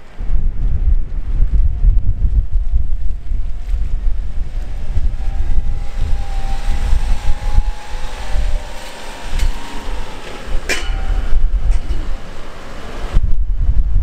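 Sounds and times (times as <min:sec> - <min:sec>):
wind buffeting on microphone: 0:00.0 - 0:14.0
small truck engine running: 0:02.4 - 0:13.2.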